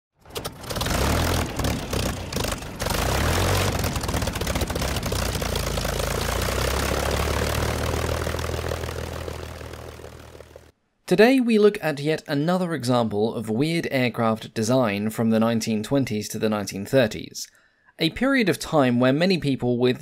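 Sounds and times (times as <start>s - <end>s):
propeller aircraft engine running: 0.2s - 10.7s.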